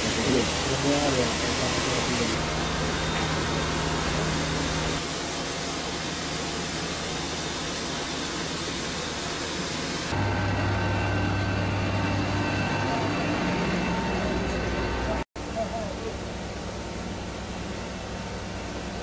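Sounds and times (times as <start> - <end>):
hose jet spraying water: 0.0 - 10.2.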